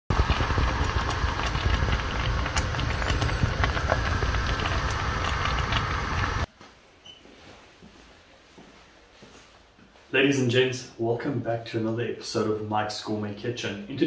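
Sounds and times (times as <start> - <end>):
low rumble: 0.1 - 6.5
thick porridge bubbling in a pot: 0.1 - 6.5.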